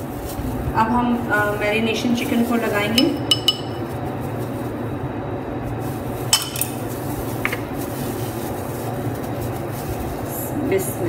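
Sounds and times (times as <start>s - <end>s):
steady low hum: 0.0s - 11.0s
dishes clinking: 3.0s - 3.8s, 6.3s - 6.8s.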